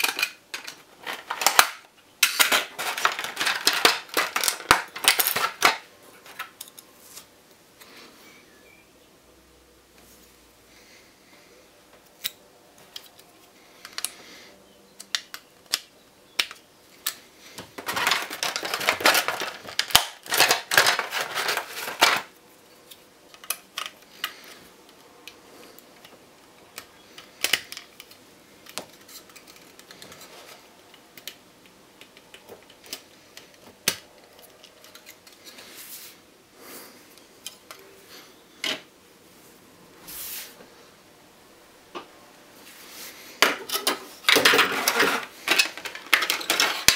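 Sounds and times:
rustling plastic wrap: 2.4 - 5.8, 17.8 - 22.4.

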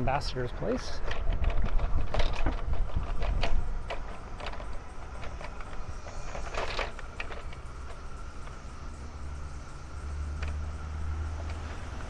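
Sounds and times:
bicycle clicks and rattles: 0.0 - 12.0
wind rumbling on microphone: 0.8 - 8.7.

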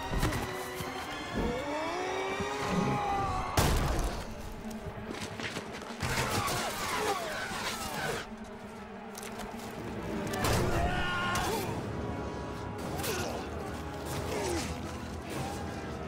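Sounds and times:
men yelling battle cries: 9.4 - 16.0.

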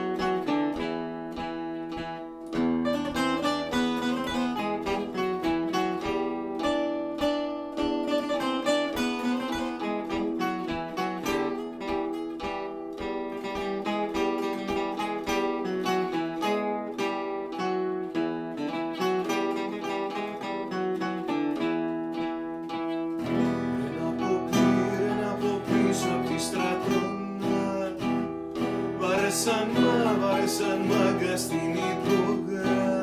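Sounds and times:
acoustic guitars playing: 0.0 - 33.0.

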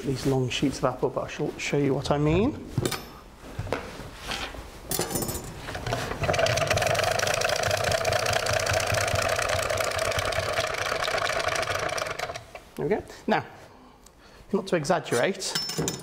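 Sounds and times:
hand-cranked slicer whirring rasp: 6.1 - 12.6.

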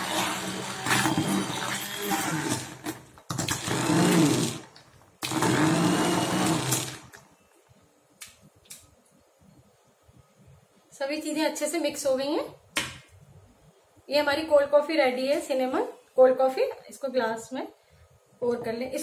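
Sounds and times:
hand blender running in glass bowl: 0.0 - 2.8, 3.5 - 4.6, 5.2 - 7.0.

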